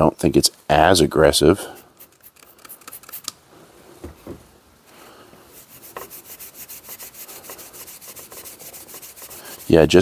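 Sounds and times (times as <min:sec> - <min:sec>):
spray bottle squirting: 0:02.0 - 0:03.4
steel wool scrubbing metal: 0:05.5 - 0:10.0.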